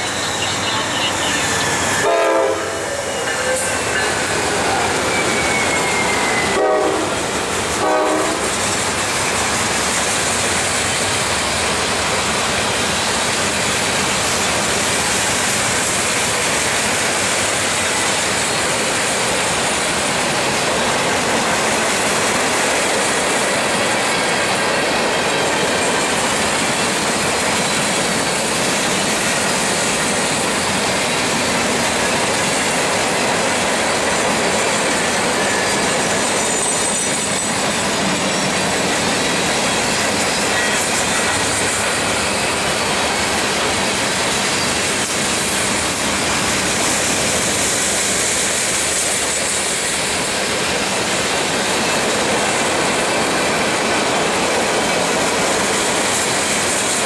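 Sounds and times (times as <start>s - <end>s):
freight cars rolling on rails: 0.0s - 57.0s
locomotive horn: 0.2s - 8.5s.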